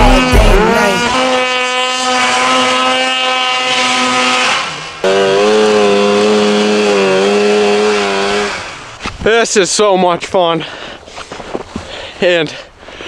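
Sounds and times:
snowmobile engines revving high: 0.0s - 8.9s.

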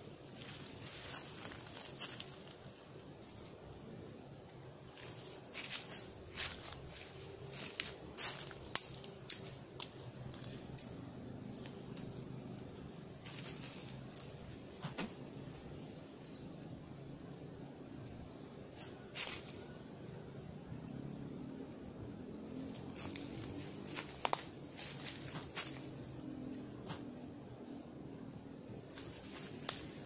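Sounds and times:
rustle in undergrowth: 0.0s - 3.8s, 4.8s - 15.7s, 18.7s - 19.8s, 22.6s - 27.0s, 28.8s - 30.0s
twigs and brush crackling: 0.2s - 3.8s, 4.8s - 15.6s, 22.7s - 27.0s, 28.8s - 30.0s.

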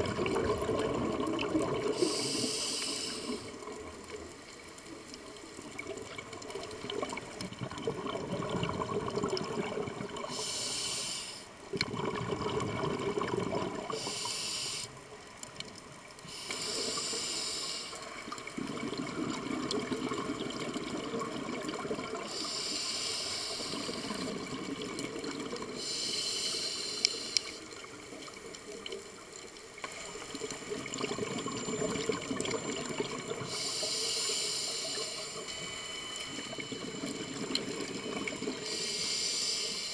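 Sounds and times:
regulator hissing inhales: 1.9s - 3.6s, 10.3s - 11.6s, 13.9s - 15.0s, 16.2s - 18.2s, 22.2s - 24.3s, 25.8s - 27.8s, 33.4s - 36.6s, 38.6s - 39.9s.

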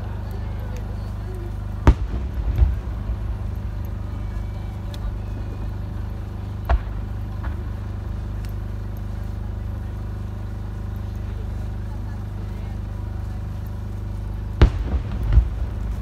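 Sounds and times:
steady low drone: 0.0s - 16.0s
fireworks sharp bang: 1.8s - 5.9s, 6.5s - 7.8s, 14.6s - 16.0s
fireworks shell burst rumbling: 1.8s - 9.2s, 14.6s - 16.0s.

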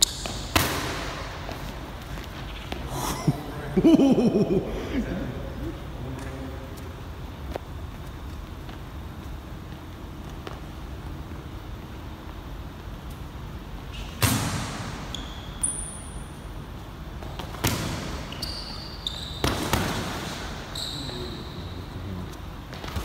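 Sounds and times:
sneaker squeaks on floor: 0.0s - 0.5s, 14.9s - 16.2s, 17.6s - 22.0s.

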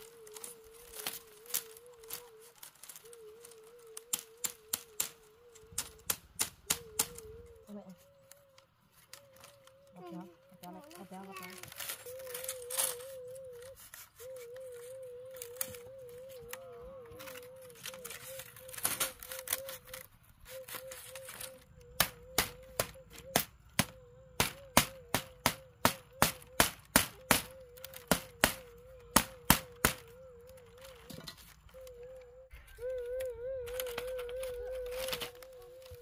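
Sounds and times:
bamboo strips clicking and rustling: 0.0s - 36.0s
hand tool knocking bamboo: 4.1s - 7.2s, 22.0s - 31.6s.

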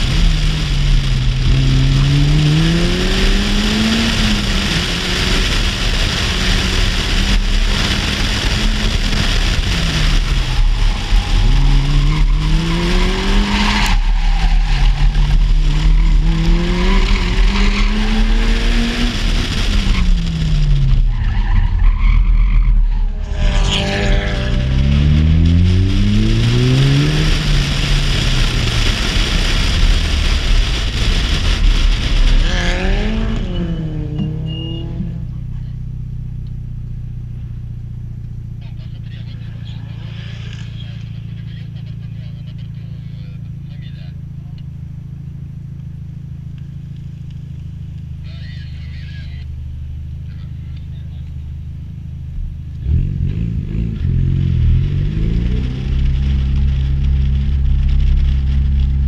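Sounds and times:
car engine revving: 0.0s - 59.0s
wind and road noise: 0.0s - 59.0s
tyre squeal: 10.5s - 18.4s, 33.3s - 35.2s.

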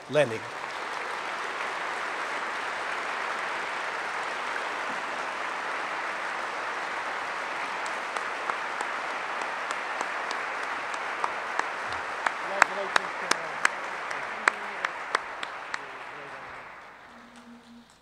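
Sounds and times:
audience applauding: 0.0s - 18.0s.

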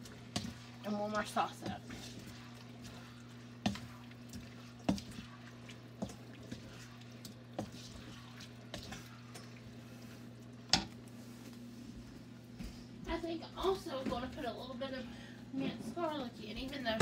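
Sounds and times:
spoon stirring food in a wok: 0.0s - 11.0s.

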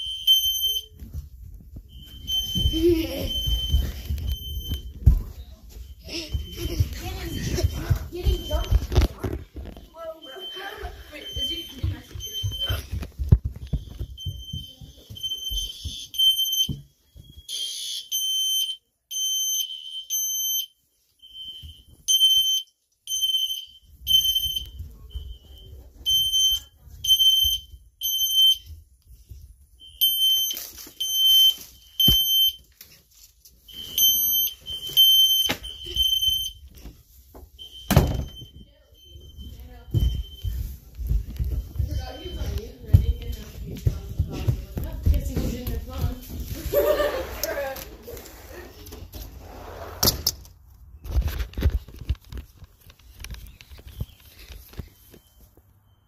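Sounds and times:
fire alarm horn blasts: 17.5s - 20.7s.

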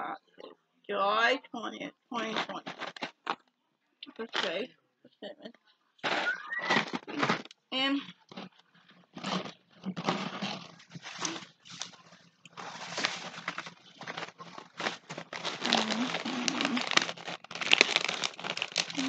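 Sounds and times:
clothing fabric rustling: 10.1s - 19.0s
murmured vocal sounds: 15.4s - 17.3s, 17.9s - 19.0s.

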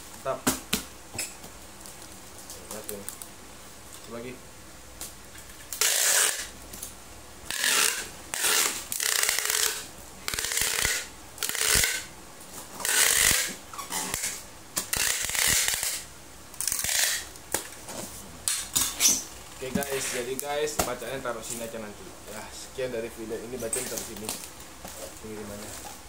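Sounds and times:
packing tape ripping: 5.6s - 6.9s, 7.5s - 12.1s, 12.8s - 17.8s.

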